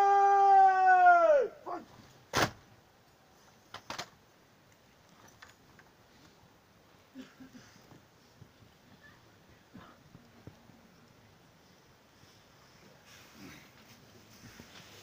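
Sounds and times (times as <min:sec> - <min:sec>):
person shouting a command: 0:00.0 - 0:01.9.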